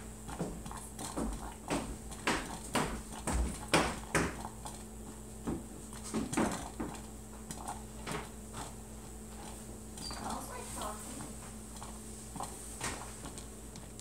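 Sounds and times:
coffee percolator perking: 5.8 - 14.0.

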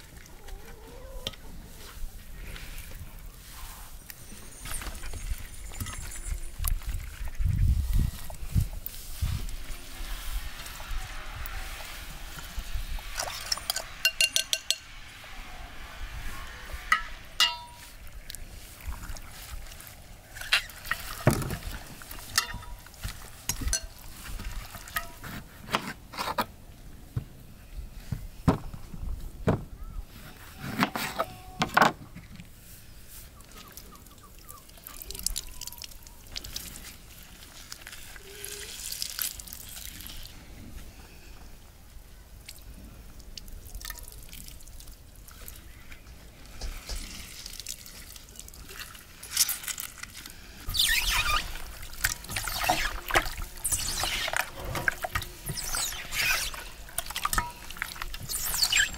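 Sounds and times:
salt rustling: 1.7 - 25.7, 35.0 - 40.4, 44.5 - 58.9
wet squelching of fish: 47.1 - 58.9.

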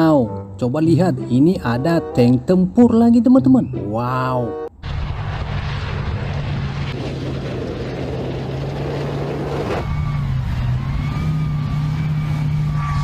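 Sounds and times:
tank engine running: 4.8 - 13.0.

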